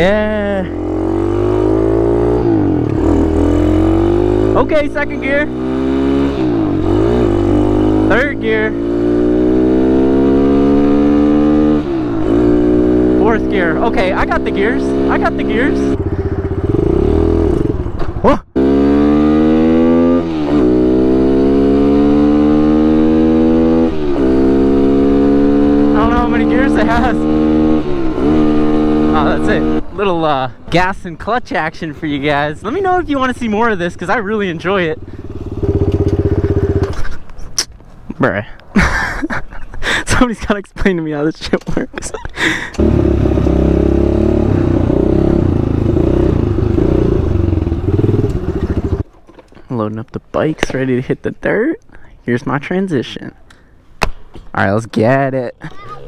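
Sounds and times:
pit bike engine revving: 0.0 - 30.2, 32.1 - 37.2, 42.4 - 49.1.

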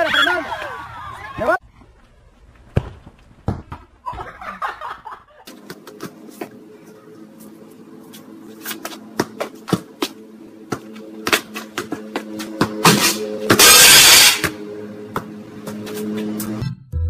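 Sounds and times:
football being kicked: 2.7 - 3.9.

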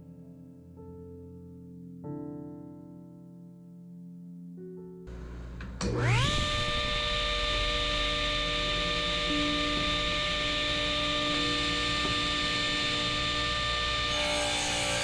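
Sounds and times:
table saw motor hum and whine: 5.1 - 15.0
saw blade cutting wood: 14.0 - 15.0.

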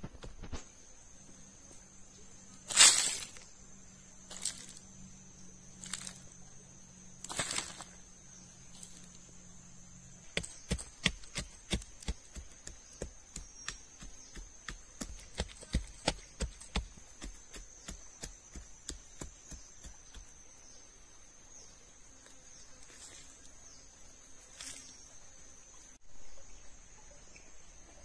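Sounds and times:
digging stick scraping soil: 2.7 - 3.5, 7.2 - 8.0.

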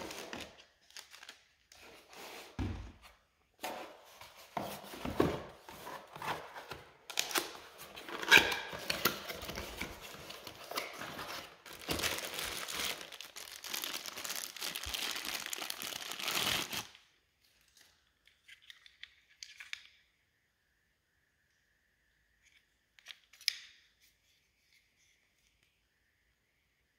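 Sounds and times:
packaging torn and crinkled: 0.0 - 1.6, 7.1 - 17.0.

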